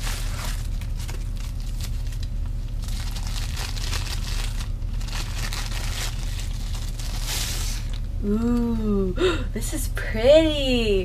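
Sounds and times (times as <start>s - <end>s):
plastic packaging crinkling: 0.0s - 8.2s
steady low hum: 0.0s - 11.0s.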